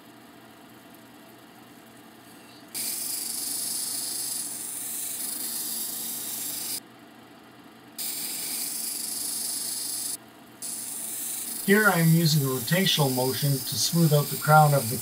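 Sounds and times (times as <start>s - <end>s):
stone grinding on wheel: 2.8s - 6.8s
machine humming: 10.6s - 15.0s.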